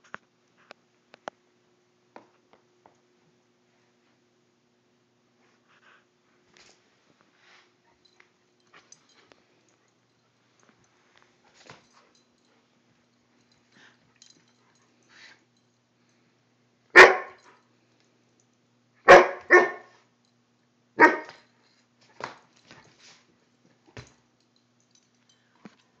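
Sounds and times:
wolf pup barking: 17.0s - 17.4s, 19.0s - 19.9s, 21.0s - 21.4s.

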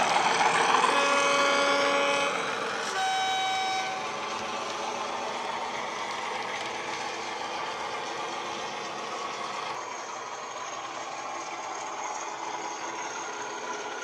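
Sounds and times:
model diesel locomotive engine: 0.0s - 14.0s
two-tone train horn: 0.9s - 4.2s.

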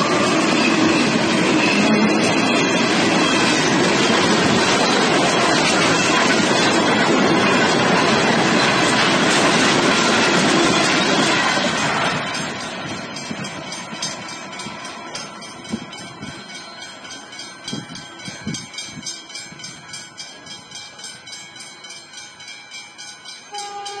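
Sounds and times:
freight train wagons on tracks: 0.0s - 24.0s
level crossing bells ringing: 10.2s - 24.0s.

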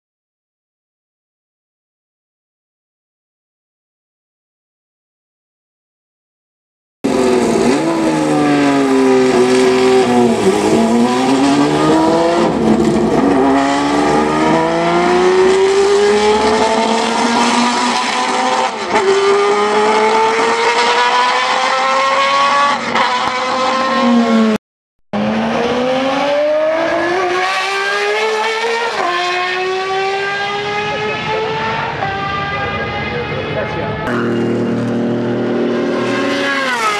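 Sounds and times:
racing engine revving through gears: 7.1s - 24.6s, 25.2s - 36.9s.

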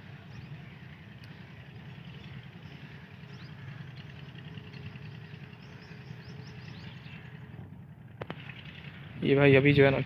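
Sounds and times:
small birds chirping: 0.0s - 7.8s
low background rumble: 0.0s - 10.0s.

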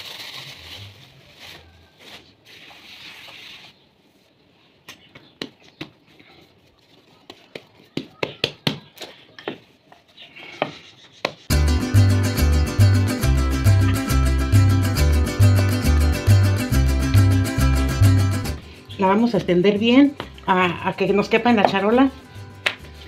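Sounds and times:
plastic bag rustling: 0.0s - 3.8s
hands slapping dough on tile: 4.8s - 6.2s, 7.1s - 9.7s, 10.6s - 11.5s, 22.6s - 23.0s.

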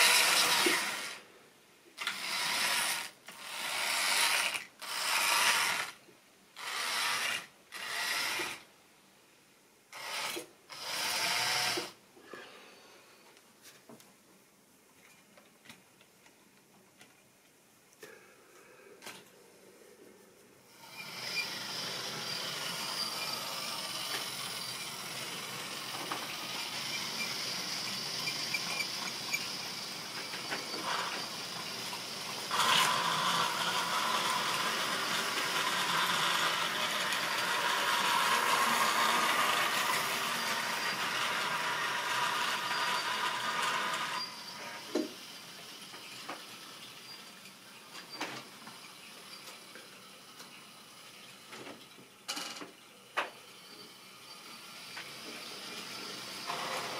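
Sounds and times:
model train whirring rattle: 0.0s - 1.2s, 2.0s - 6.0s, 6.6s - 8.6s, 20.7s - 52.6s, 53.5s - 56.9s.

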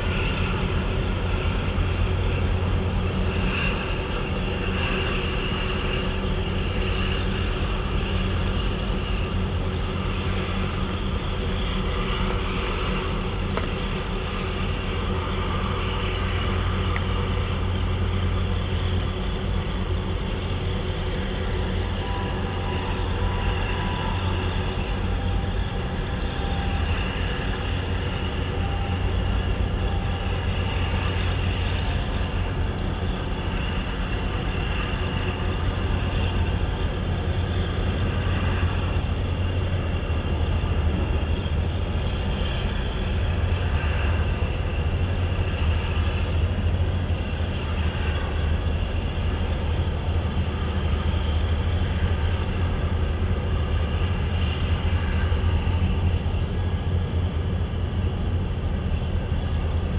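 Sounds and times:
low drone of ship engines: 0.0s - 59.9s.

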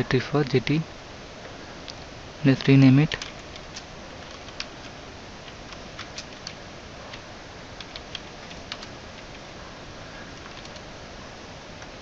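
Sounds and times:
steady hiss: 0.0s - 12.0s
keyboard keystroke clicks: 7.8s - 9.3s.

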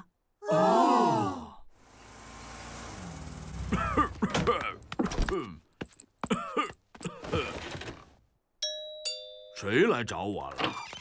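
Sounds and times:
cartoon voice coughing: 3.7s - 5.6s, 6.2s - 7.6s.

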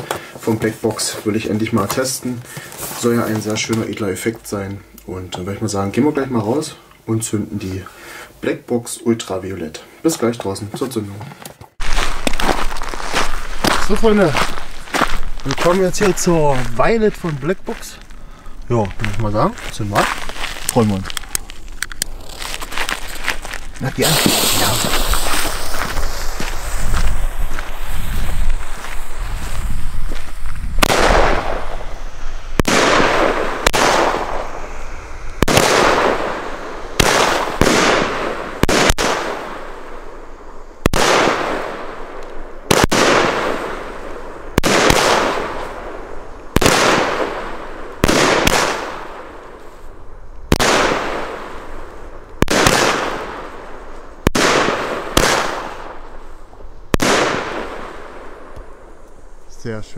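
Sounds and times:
firework bangs: 11.8s - 17.8s, 22.1s - 49.6s, 50.5s - 56.2s, 56.9s - 58.9s
firework hissing: 19.8s - 59.5s.

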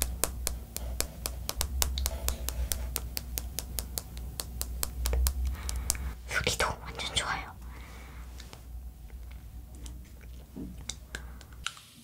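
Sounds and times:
fingernails tapping sugar shell: 0.0s - 6.2s.

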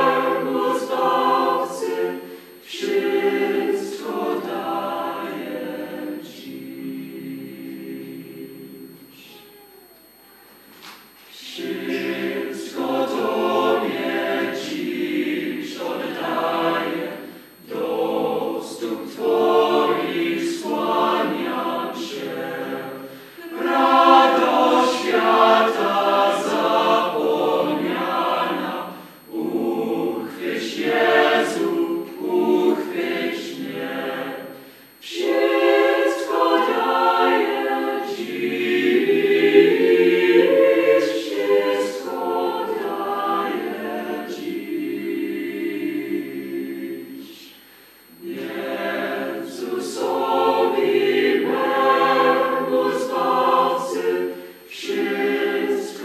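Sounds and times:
mixed choir singing unaccompanied: 0.0s - 9.2s, 11.3s - 56.0s.

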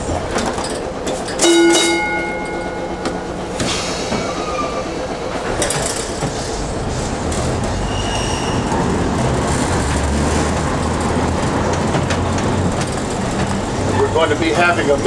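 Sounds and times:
low motor hum: 0.0s - 7.9s
streetcar wheels rumbling: 0.0s - 15.0s
high wheel squeal: 1.2s - 9.3s, 13.8s - 14.7s.

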